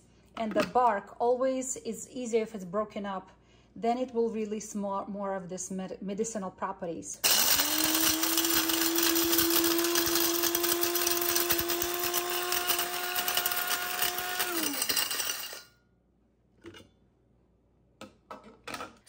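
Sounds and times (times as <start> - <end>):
motor spinning down: 7.2 - 15.6
spice grinder motor whine: 7.2 - 15.7.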